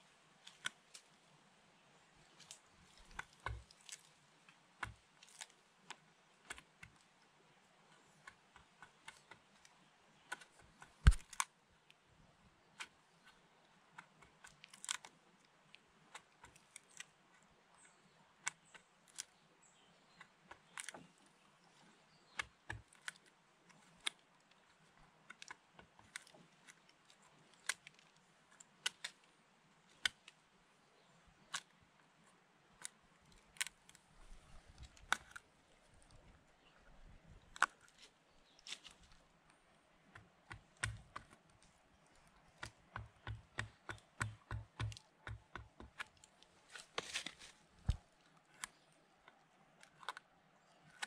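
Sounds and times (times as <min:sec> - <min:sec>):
sharp clicks and ticks: 0:40.1 - 0:41.4, 0:42.6 - 0:46.3.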